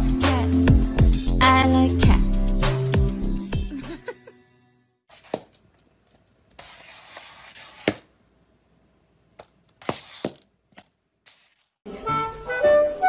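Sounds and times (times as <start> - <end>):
plastic collar scraping on tiles: 5.1 - 8.1, 9.7 - 10.5, 11.2 - 11.8.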